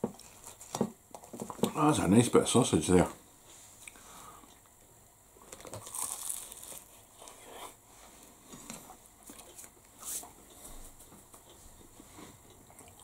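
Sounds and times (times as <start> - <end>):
pastry crackling and crunching: 5.4 - 7.6.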